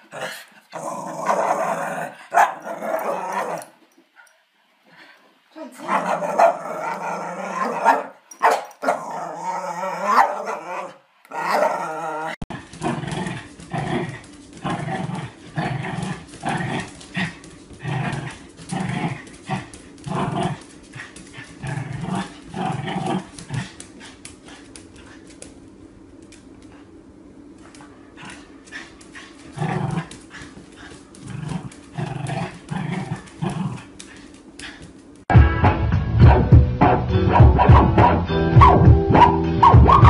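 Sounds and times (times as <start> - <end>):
dog grumbling yowls: 8.8 - 12.4
dog moaning speech-like: 11.4 - 12.4.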